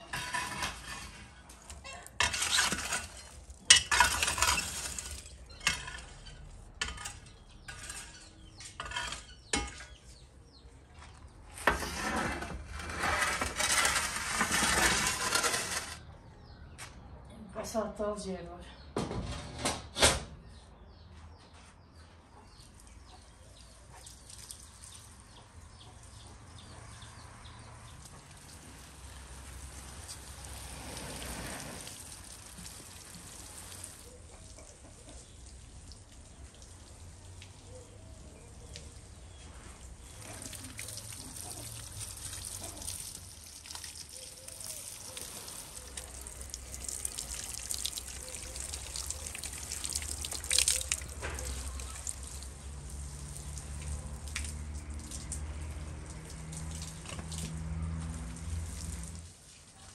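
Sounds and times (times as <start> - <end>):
water trickling and dripping: 22.5 - 59.9.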